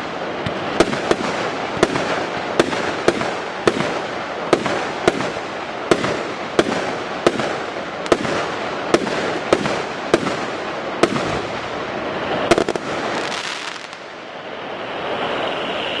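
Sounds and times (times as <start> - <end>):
firework bangs: 0.0 - 14.1
crackling firework stars: 0.0 - 16.0
steady hiss: 0.0 - 16.0
rapid firework pops: 0.4 - 11.5.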